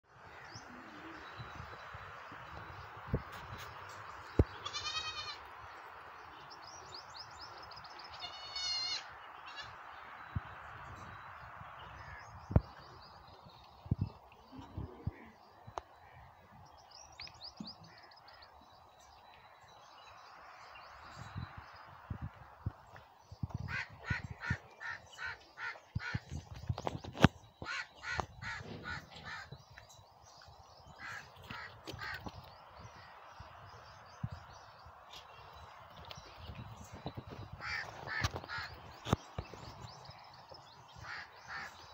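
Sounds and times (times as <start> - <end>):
small birds chirping: 0.6 - 41.9
goat kid bleating: 4.6 - 5.4, 8.1 - 9.7.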